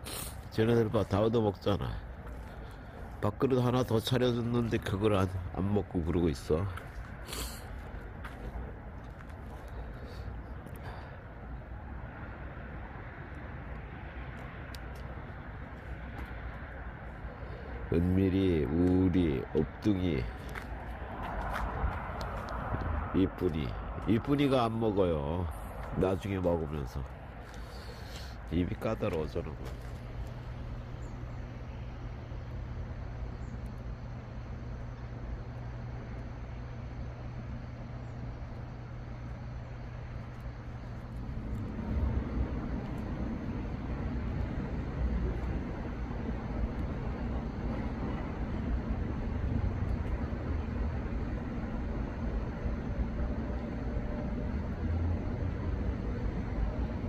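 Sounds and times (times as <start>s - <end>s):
steady hiss: 0.0s - 2.1s
faint outdoor background noise: 0.0s - 57.0s
low mechanical hum: 0.0s - 57.0s
low rumbling background noise: 0.0s - 57.0s.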